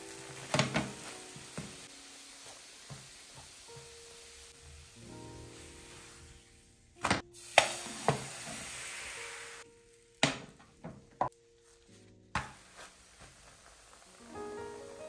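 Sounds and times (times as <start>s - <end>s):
batter sizzling in pan: 0.0s - 15.0s
quiet background music: 0.0s - 15.0s
frying pan knocking on hob: 0.4s - 1.8s.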